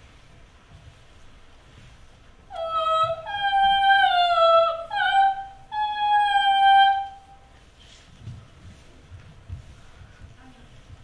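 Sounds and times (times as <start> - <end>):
woman's wordless singing: 2.5 - 7.5.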